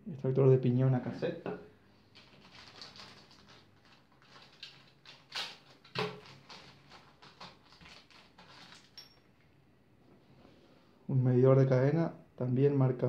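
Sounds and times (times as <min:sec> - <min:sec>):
plastic packaging crinkling: 0:02.0 - 0:09.2.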